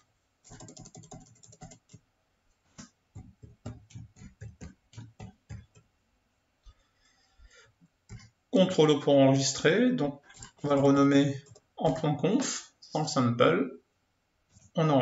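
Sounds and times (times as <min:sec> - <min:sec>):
computer keyboard typing: 0:00.4 - 0:02.0, 0:02.8 - 0:05.9.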